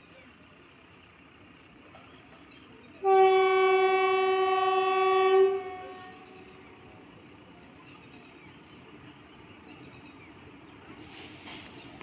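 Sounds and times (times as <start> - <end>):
locomotive air horn blast: 3.0 - 6.3.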